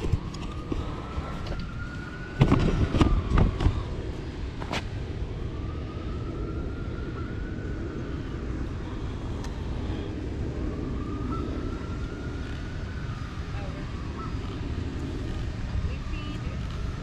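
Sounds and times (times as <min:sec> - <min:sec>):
distant siren wailing: 0:00.0 - 0:17.0.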